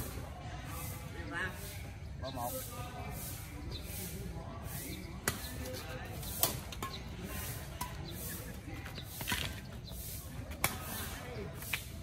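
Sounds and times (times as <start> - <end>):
rackets hitting shuttlecock: 5.2 - 8.4, 10.5 - 11.9.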